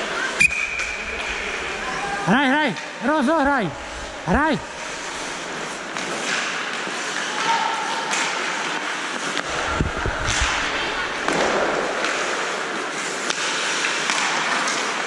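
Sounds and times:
skates scraping on ice: 0:00.0 - 0:15.0
sticks and puck clacking: 0:04.8 - 0:15.0
low thuds: 0:09.4 - 0:11.9.

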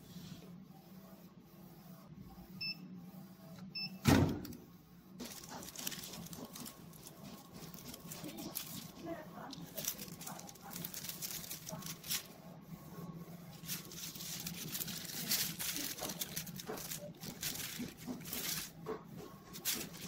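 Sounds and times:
foil sheet crinkling: 0:05.2 - 0:12.4, 0:13.5 - 0:20.0.

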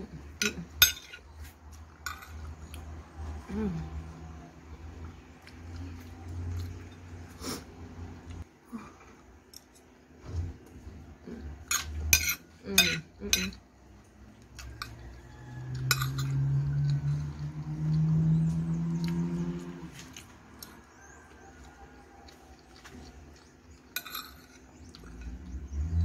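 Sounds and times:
metal spoon scraping ceramic plate: 0:00.4 - 0:01.3, 0:02.0 - 0:02.5, 0:11.6 - 0:13.6, 0:15.8 - 0:16.4, 0:24.0 - 0:24.7.

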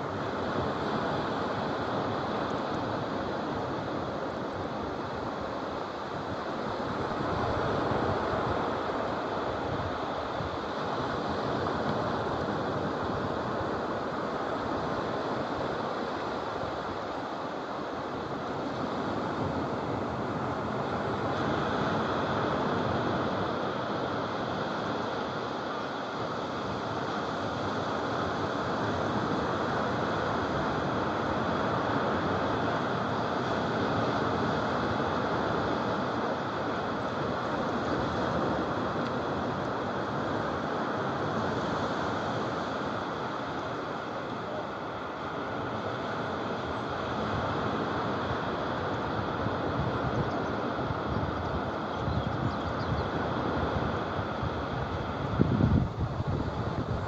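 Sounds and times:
waves breaking on beach: 0:00.0 - 0:57.0.

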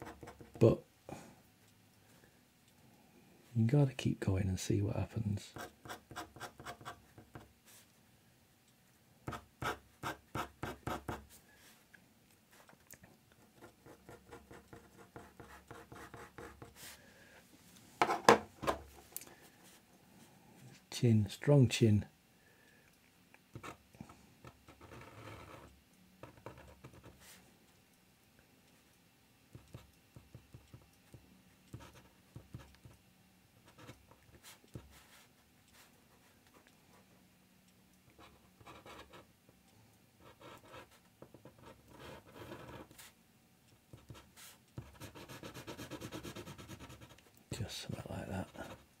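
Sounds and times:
pen scratching on paper: 0:09.3 - 0:11.2, 0:13.4 - 0:16.9, 0:24.7 - 0:27.4, 0:40.2 - 0:43.1, 0:43.9 - 0:47.2.

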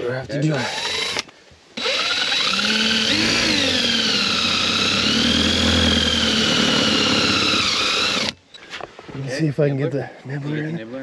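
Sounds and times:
power drill boring into metal: 0:00.6 - 0:08.4.

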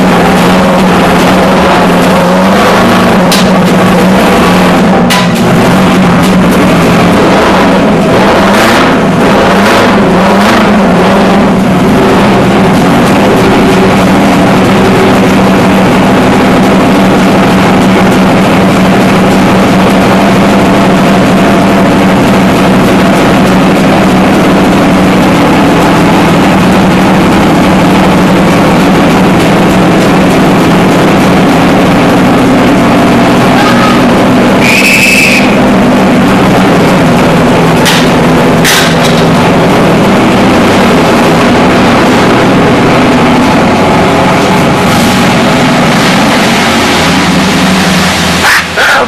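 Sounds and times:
heavy diesel engine running: 0:00.0 - 0:49.0
sharp knocks: 0:37.8 - 0:39.3.

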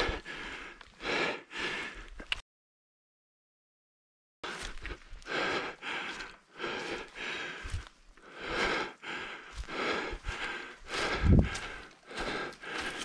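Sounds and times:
heavy breathing: 0:00.0 - 0:02.3, 0:04.4 - 0:13.0.

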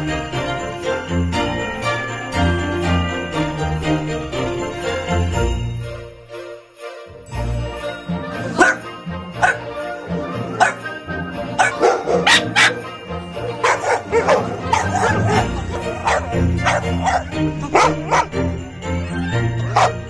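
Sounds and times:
festive holiday tune with sleigh bells: 0:00.0 - 0:20.0
dogs barking: 0:08.4 - 0:18.6, 0:19.6 - 0:20.0.

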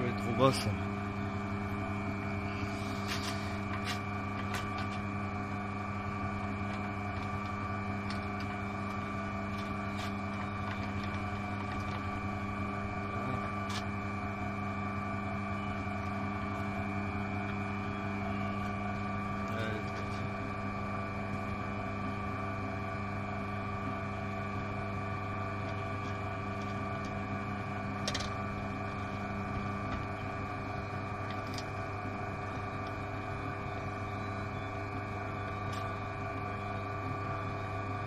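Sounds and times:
drill motor humming with high whine: 0:00.0 - 0:38.0.

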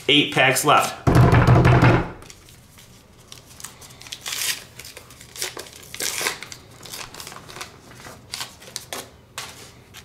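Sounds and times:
foil wrapper tearing and crinkling: 0:02.3 - 0:09.1.

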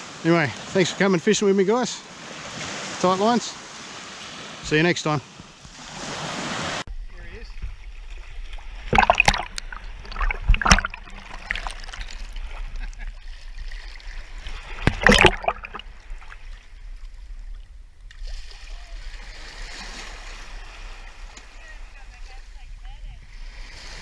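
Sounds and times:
small waves hissing: 0:00.0 - 0:24.0
sea water sloshing and splashing: 0:05.2 - 0:06.8, 0:07.6 - 0:22.4.

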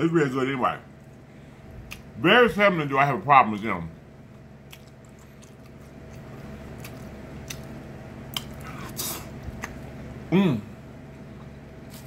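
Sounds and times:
person chewing: 0:01.0 - 0:02.1, 0:04.3 - 0:10.0.

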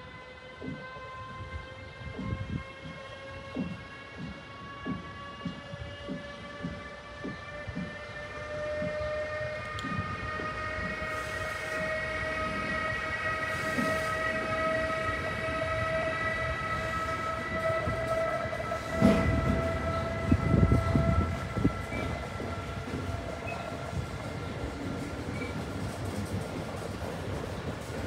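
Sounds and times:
electric locomotive whine: 0:00.0 - 0:28.0
wheels rumbling on rail: 0:00.0 - 0:28.0
heavy knocks of train wagons: 0:11.8 - 0:28.0.

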